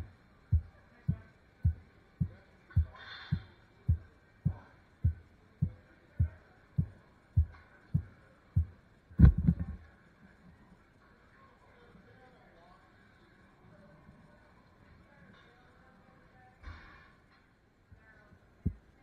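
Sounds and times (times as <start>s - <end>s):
dull low thumps: 0.0s - 9.8s.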